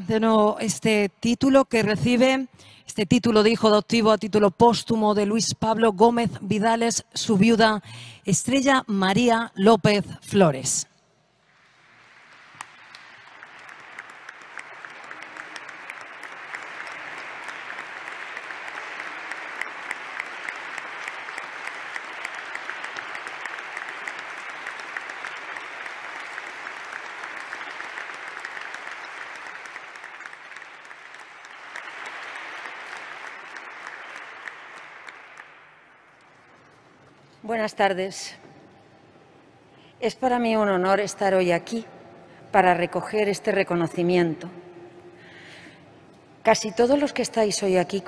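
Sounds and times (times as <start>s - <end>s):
audience applause: 11.6s - 36.6s.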